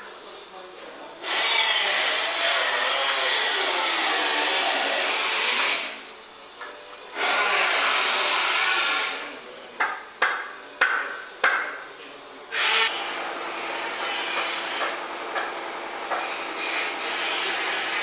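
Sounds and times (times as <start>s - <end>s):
power tool running: 1.2s - 6.0s, 7.1s - 9.4s, 12.5s - 18.0s.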